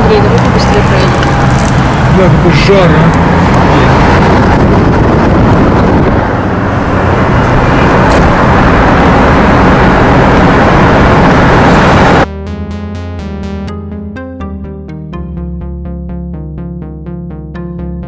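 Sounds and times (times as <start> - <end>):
car road and wind noise: 0.0 - 12.3.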